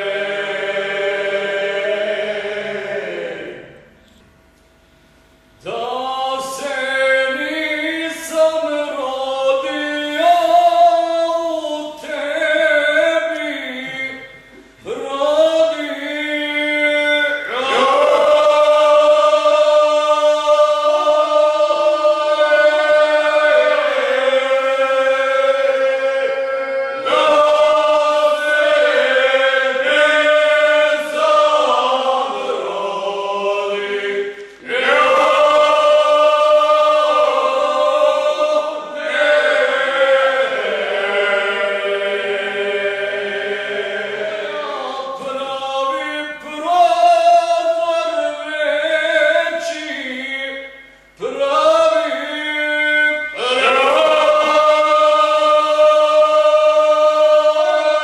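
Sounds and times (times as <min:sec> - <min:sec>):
men's choir singing unaccompanied: 0:00.0 - 0:03.9, 0:05.6 - 0:58.0.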